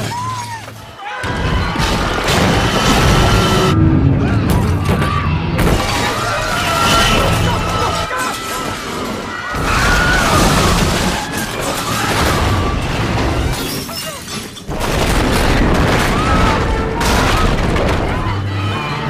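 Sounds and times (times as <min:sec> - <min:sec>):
train crashing: 0:01.2 - 0:18.2
heavy booms: 0:01.7 - 0:07.8
sudden loud hit: 0:02.0 - 0:07.6
musical score: 0:02.9 - 0:07.9
shattering debris: 0:05.6 - 0:18.2.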